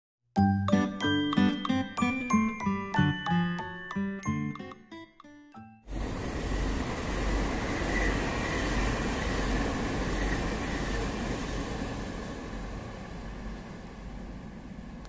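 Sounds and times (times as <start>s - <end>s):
train rumbling past: 5.9s - 15.0s.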